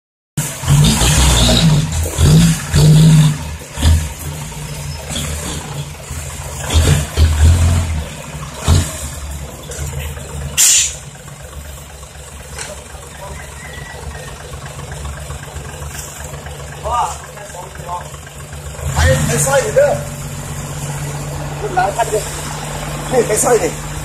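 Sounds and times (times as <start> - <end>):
diesel truck engine revving: 0.4 - 24.0
sharp hiss of air: 10.6 - 11.0.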